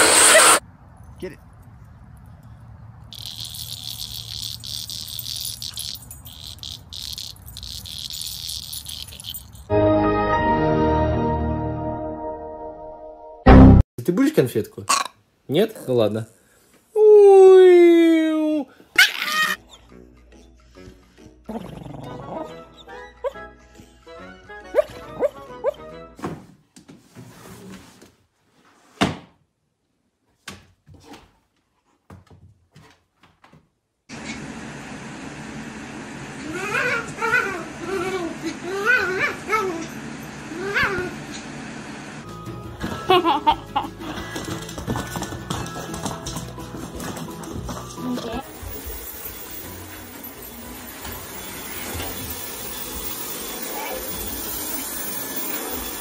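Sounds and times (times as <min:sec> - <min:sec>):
insects buzzing: 0:03.1 - 0:09.2.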